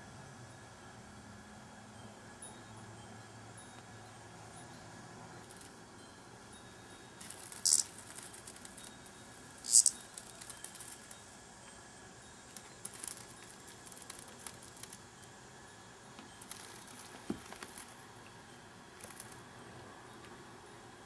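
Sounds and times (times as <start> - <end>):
cicada buzzing: 6.8 - 11.4.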